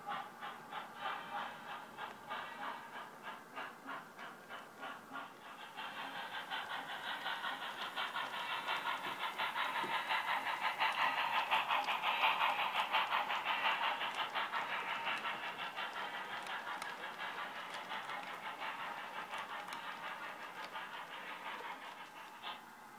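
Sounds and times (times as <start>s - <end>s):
model steam locomotive chuffs: 0.0s - 22.9s.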